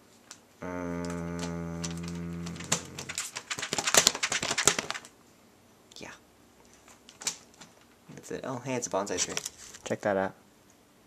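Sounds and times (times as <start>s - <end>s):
low steady hum: 0.0s - 3.6s
typing on laptop keyboard: 1.3s - 5.1s.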